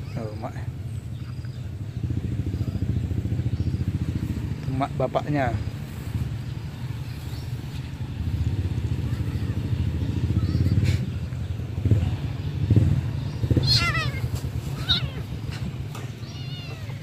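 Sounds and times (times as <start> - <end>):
kitten distress cry: 13.3 - 17.0.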